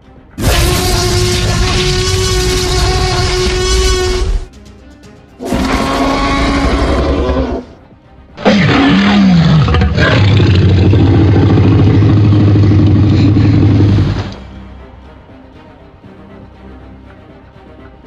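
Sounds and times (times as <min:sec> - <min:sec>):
dinosaur roar: 0:00.4 - 0:04.3, 0:05.4 - 0:07.8, 0:08.4 - 0:14.4.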